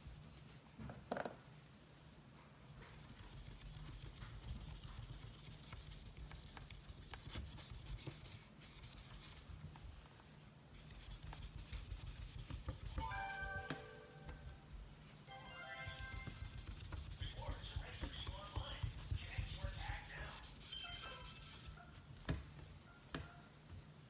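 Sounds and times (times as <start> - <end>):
low steady hum: 0.0 - 24.0
eraser rubbing painted door: 2.8 - 10.1, 10.7 - 13.0, 16.2 - 22.0.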